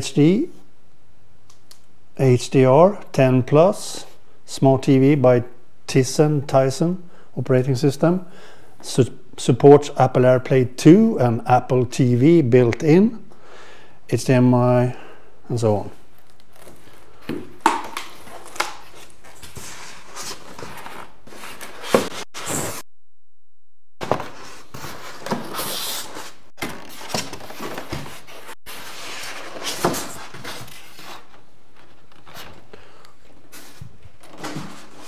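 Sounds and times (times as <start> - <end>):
packaging rustling: 16.1 - 22.8.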